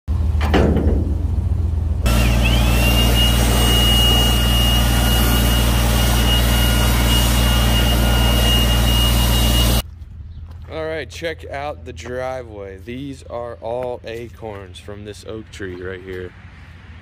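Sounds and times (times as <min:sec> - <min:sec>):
engine running: 0:00.1 - 0:10.0
high whine: 0:01.2 - 0:09.8.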